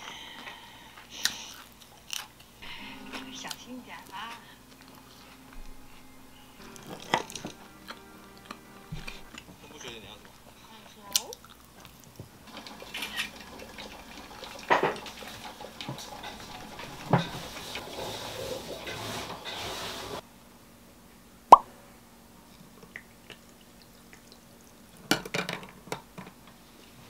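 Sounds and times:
coffee dripping: 0:11.2 - 0:18.8
espresso machine hissing: 0:12.5 - 0:20.2.

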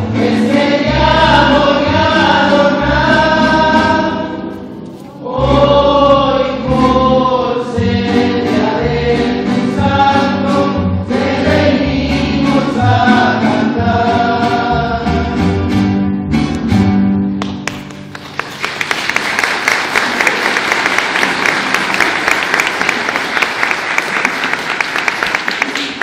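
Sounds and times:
group singing: 0:00.0 - 0:04.5, 0:05.1 - 0:15.6
crowd applause: 0:17.4 - 0:26.0.

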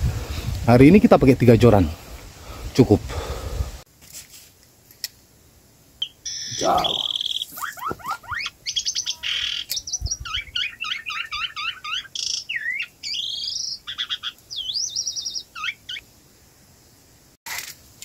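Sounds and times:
songbird singing: 0:05.9 - 0:17.3.

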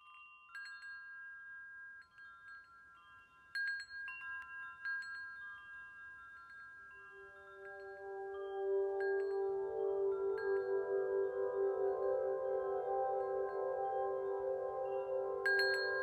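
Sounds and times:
wind chimes tinkling: 0:00.0 - 0:16.0.

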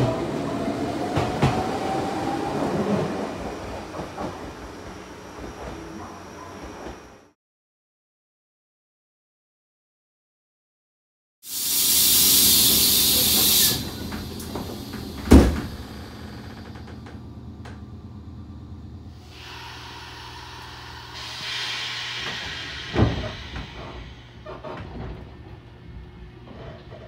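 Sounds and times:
train doors thumping shut: 0:01.0 - 0:02.0, 0:12.7 - 0:17.9, 0:21.2 - 0:25.7
compressed air hissing: 0:11.5 - 0:16.3, 0:19.2 - 0:24.7.

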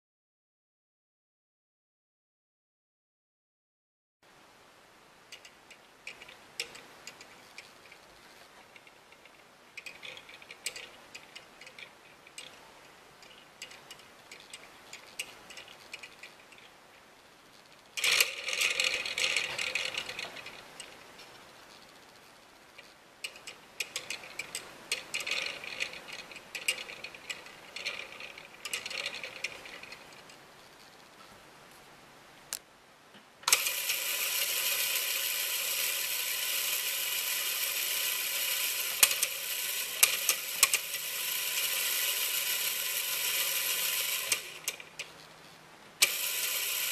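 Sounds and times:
plastic pins clicking and rattling: 0:05.3 - 0:16.8, 0:17.6 - 0:21.1, 0:22.8 - 0:31.0, 0:33.5 - 0:45.3.

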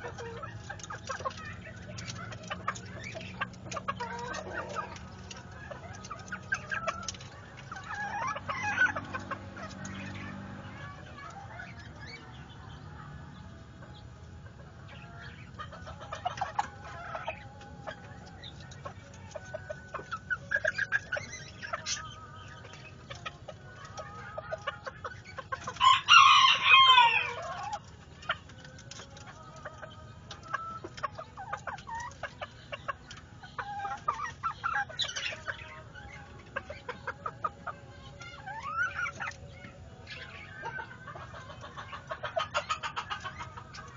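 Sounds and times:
chickens clucking: 0:00.0 - 0:43.9
rooster crowing: 0:25.8 - 0:27.5.

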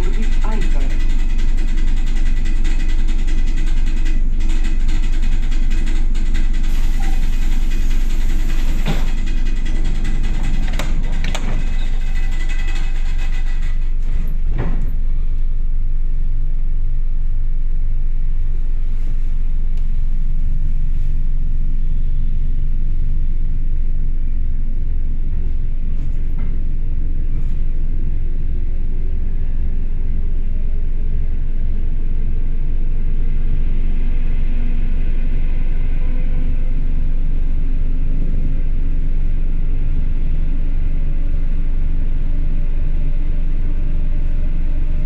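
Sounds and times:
electric train rumbling: 0:00.0 - 0:45.0.

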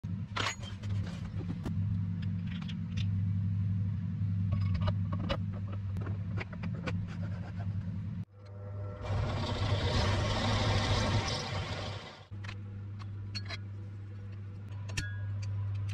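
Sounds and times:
electric motor hum: 0:08.3 - 0:12.3.

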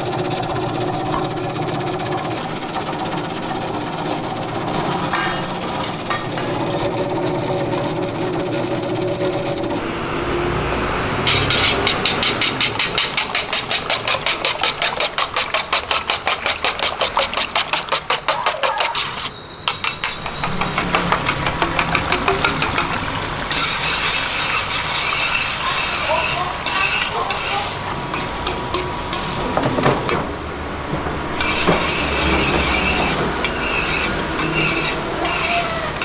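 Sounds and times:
egg sizzling on hot pan: 0:11.3 - 0:19.1
whisk clicking in metal bowl: 0:11.3 - 0:27.4.

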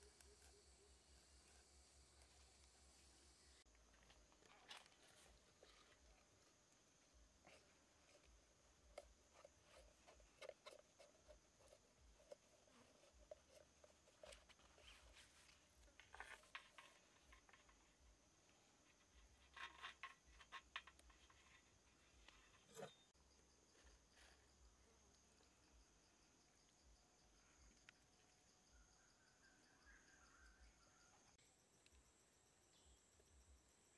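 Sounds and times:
clicks and rustles of handling: 0:00.0 - 0:18.1, 0:18.7 - 0:23.1.

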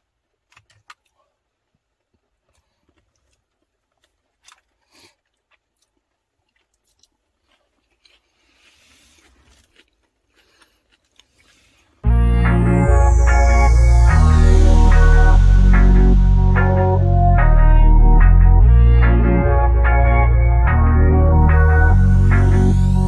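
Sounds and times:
person chewing food: 0:00.3 - 0:12.0.

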